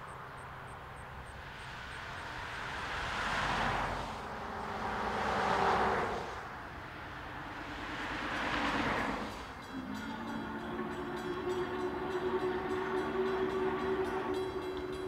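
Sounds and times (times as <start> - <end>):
steam train rushing past: 1.5 - 15.0
steam whistle: 8.0 - 15.0.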